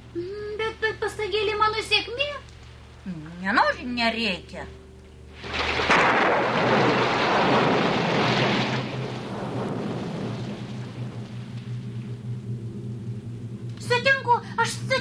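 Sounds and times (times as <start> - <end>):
heavy rain: 5.4 - 12.0.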